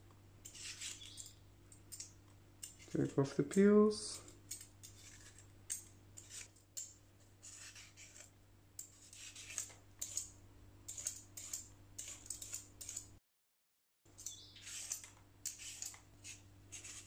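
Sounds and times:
peeler scraping vegetable skin: 0.4s - 1.4s, 4.5s - 10.3s, 10.9s - 13.1s, 14.2s - 17.0s.

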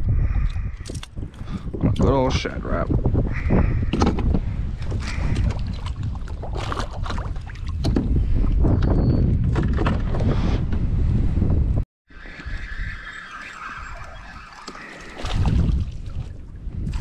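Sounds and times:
wind rumbling on microphone: 0.0s - 17.0s
water splashes: 4.9s - 7.9s, 12.5s - 17.0s.

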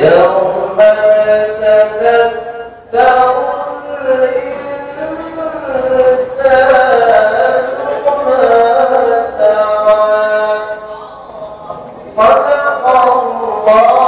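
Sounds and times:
man reciting in melodic chant: 0.0s - 14.0s.

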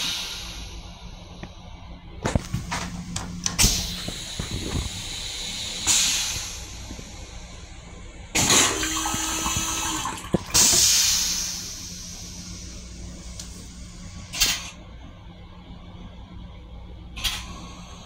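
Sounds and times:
steady hum: 0.0s - 18.0s
toilet flush hiss: 3.6s - 6.8s, 8.4s - 13.4s
water rushing in toilet: 8.4s - 11.6s.

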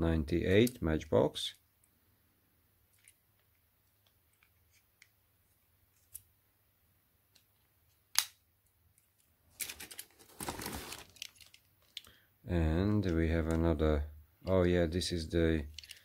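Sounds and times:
plastic bag rustling: 9.5s - 11.6s.

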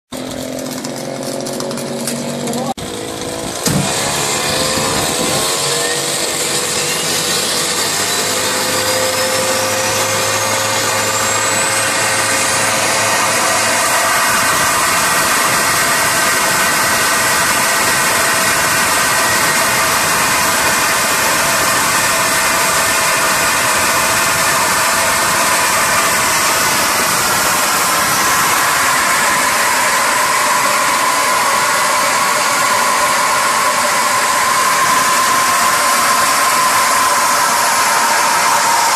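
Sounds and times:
gas turbine combustion roar: 0.1s - 38.9s
turbo whine rising in pitch: 0.2s - 38.9s.

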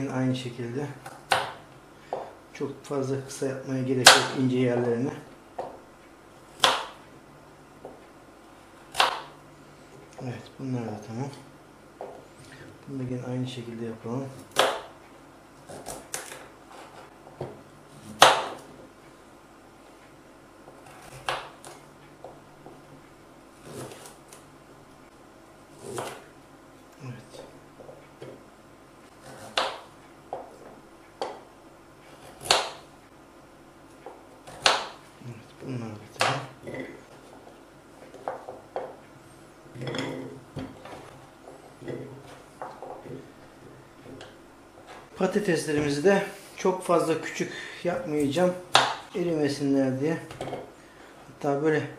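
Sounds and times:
knife chopping on plastic board: 1.0s - 2.3s, 6.6s - 7.0s, 8.9s - 9.3s, 14.4s - 14.9s, 15.7s - 18.7s, 20.8s - 22.4s, 25.8s - 26.2s, 29.2s - 30.6s, 32.2s - 32.8s, 34.0s - 35.0s, 36.2s - 36.8s, 48.7s - 49.2s.

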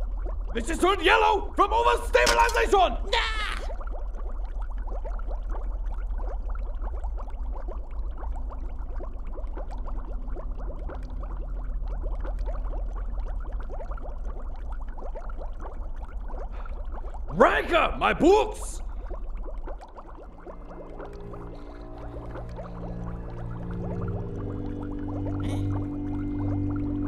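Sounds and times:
liquid bubbling: 0.0s - 27.0s.

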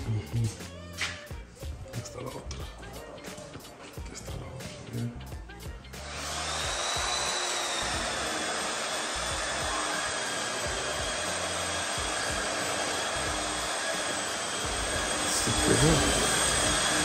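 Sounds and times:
electric motor blowing air: 5.9s - 17.0s.

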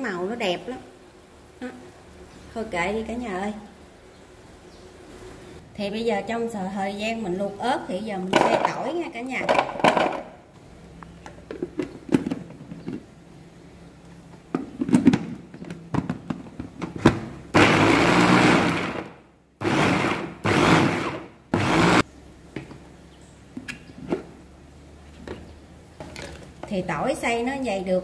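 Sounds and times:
electric food chopper motor: 17.5s - 22.0s.

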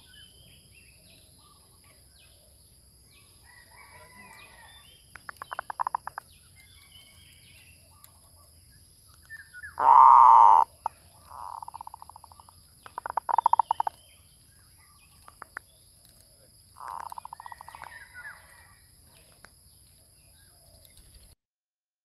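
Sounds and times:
dove rapid staccato cooing: 9.8s - 12.3s, 12.9s - 14.0s.

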